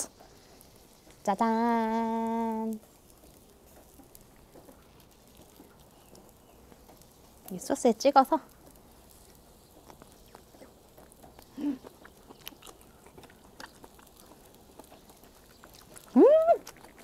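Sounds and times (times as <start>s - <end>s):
wet chewing mouth clicks: 9.1s - 17.0s.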